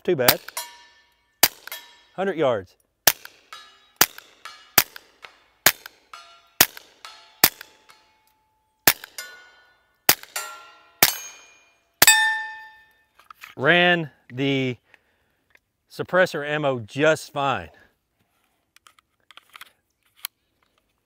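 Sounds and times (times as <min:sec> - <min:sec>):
suppressed pistol shots: 0:00.3 - 0:02.0, 0:03.0 - 0:08.1, 0:08.8 - 0:09.4, 0:10.1 - 0:12.6
steel target ringing: 0:00.3 - 0:02.3, 0:03.3 - 0:13.1.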